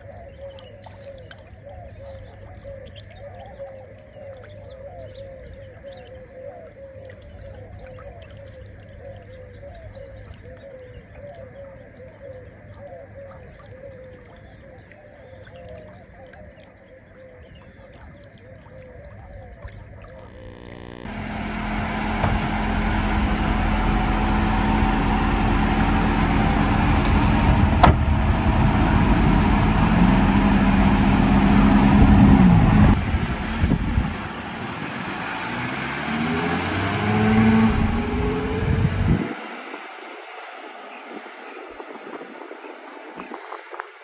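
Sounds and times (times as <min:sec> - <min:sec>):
vehicle engine hum: 0:20.3 - 0:43.1
road noise: 0:20.3 - 0:43.2.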